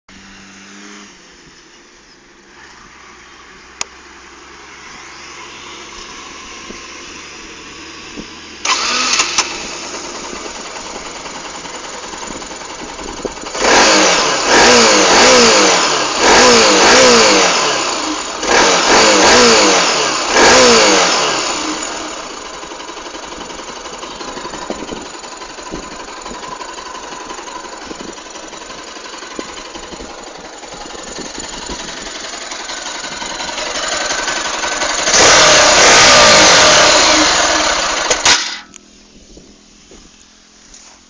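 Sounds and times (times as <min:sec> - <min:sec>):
motorcycle engine starting and idling: 0:00.1 - 0:41.0
engine revving: 0:04.5 - 0:38.8.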